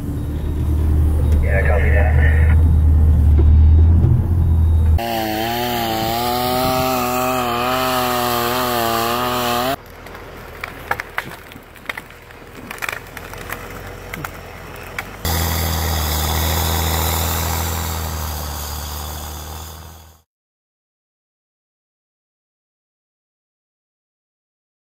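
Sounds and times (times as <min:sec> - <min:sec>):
low engine drone: 0:00.0 - 0:05.1
chainsaw running at high revs: 0:05.0 - 0:09.8, 0:15.2 - 0:20.2
tracks clicking and knocking over logs: 0:06.0 - 0:17.8.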